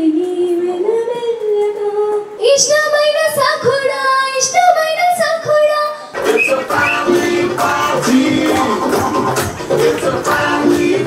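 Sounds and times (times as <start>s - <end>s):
girl singing into microphone: 0.0s - 6.1s.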